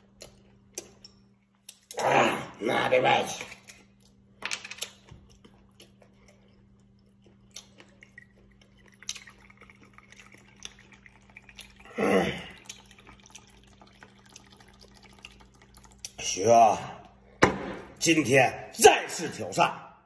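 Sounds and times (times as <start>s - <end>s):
faint drips: 5.2s - 17.3s
liquid pouring into metal cup: 7.1s - 16.4s.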